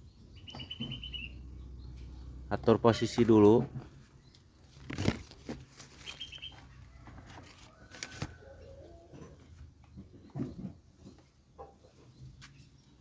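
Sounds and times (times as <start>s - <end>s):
faint bird chirps: 0.0s - 2.4s, 5.9s - 7.0s
handling knocks and rustles: 3.1s - 8.4s.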